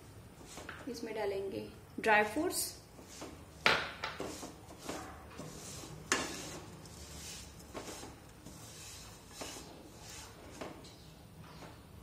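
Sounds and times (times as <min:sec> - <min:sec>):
wooden spatula scraping a pan: 0:03.0 - 0:11.0.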